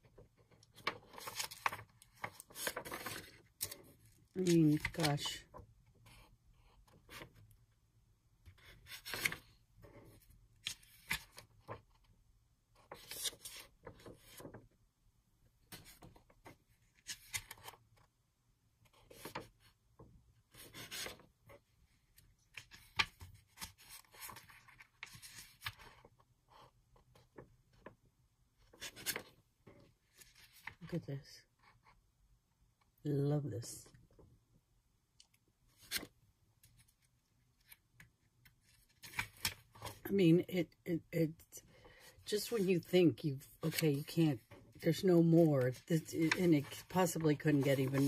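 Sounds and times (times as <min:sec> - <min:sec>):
paper pages turning: 0:00.4 - 0:05.6, 0:08.5 - 0:12.1, 0:12.8 - 0:14.6, 0:15.7 - 0:17.8, 0:18.9 - 0:19.8, 0:20.5 - 0:21.3, 0:22.1 - 0:26.2, 0:28.7 - 0:29.4, 0:35.7 - 0:37.8, 0:38.4 - 0:40.1, 0:43.5 - 0:48.0.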